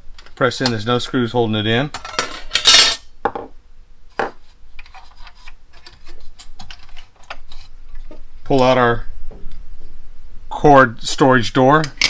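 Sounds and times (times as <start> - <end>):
scraping clatter of parts: 2.0 - 3.0.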